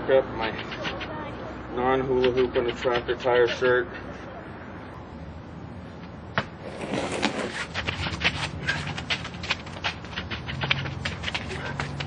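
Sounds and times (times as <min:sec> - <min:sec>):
feet shuffling: 0:00.4 - 0:01.2, 0:06.6 - 0:12.0
tire scuffing and clicking: 0:00.4 - 0:01.2, 0:01.9 - 0:03.8, 0:06.0 - 0:12.0.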